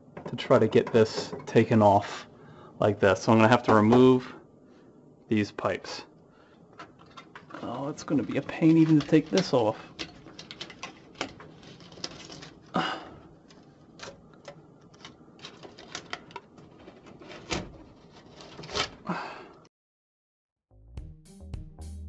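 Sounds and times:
foil tape crinkling: 7.7 - 12.8
sheet metal clicks and knocks: 8.8 - 12.5.

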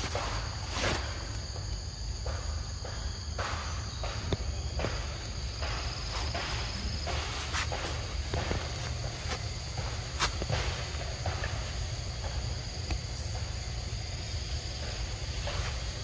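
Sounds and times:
high insect drone: 0.0 - 16.0
footsteps rustling in grass: 4.8 - 12.4.

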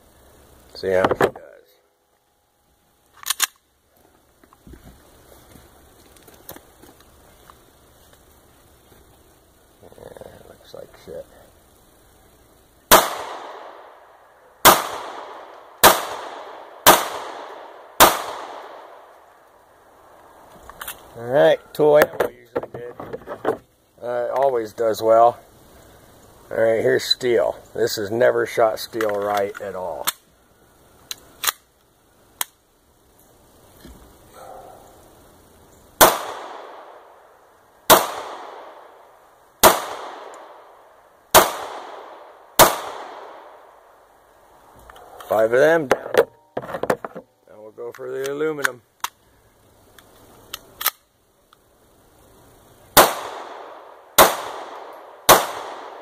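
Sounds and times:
pistol shots: 12.9 - 13.9, 14.6 - 19.0, 36.0 - 37.0, 37.9 - 38.8, 39.6 - 40.6, 41.3 - 43.6, 53.0 - 56.0.

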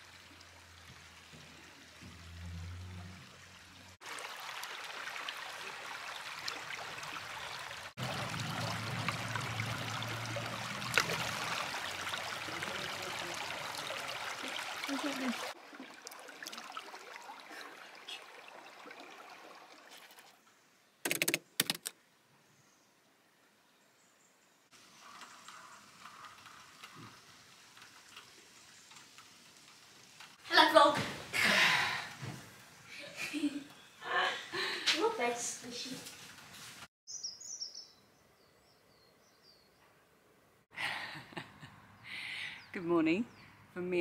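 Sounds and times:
stream trickling over rocks: 0.0 - 20.6, 24.7 - 30.6.

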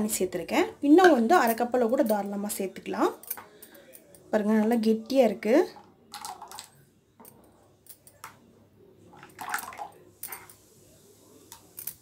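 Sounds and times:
juice pouring into a bowl: 9.2 - 10.8.

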